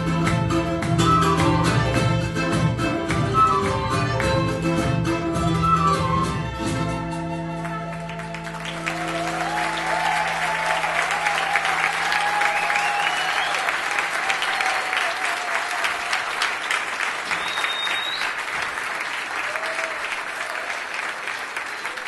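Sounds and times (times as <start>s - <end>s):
audience applauding: 7.5s - 22.0s.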